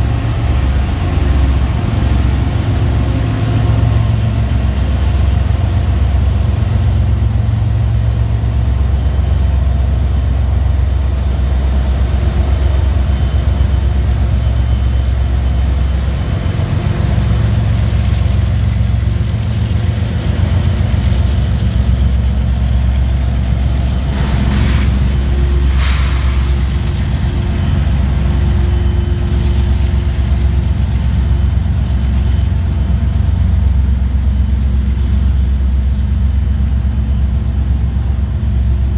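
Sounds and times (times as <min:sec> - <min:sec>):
diesel locomotive rumble: 0:00.0 - 0:38.9
brief hisses: 0:23.8 - 0:27.0.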